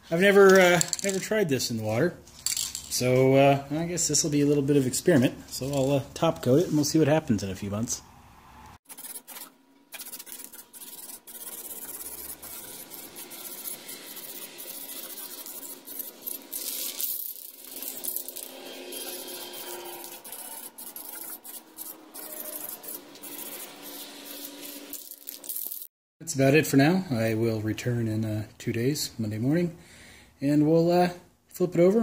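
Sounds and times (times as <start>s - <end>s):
aerosol can spraying: 8.9s - 19.3s, 20.0s - 25.9s.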